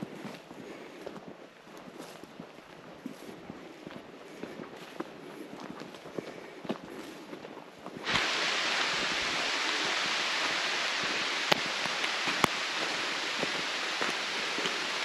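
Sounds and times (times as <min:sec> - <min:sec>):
steady rushing hiss: 0:08.0 - 0:15.0.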